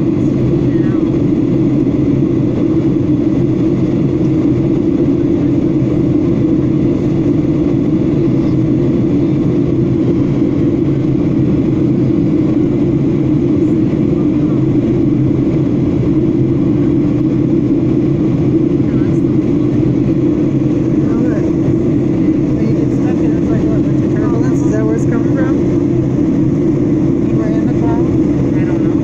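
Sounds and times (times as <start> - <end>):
airliner cabin drone: 0.0 - 29.0.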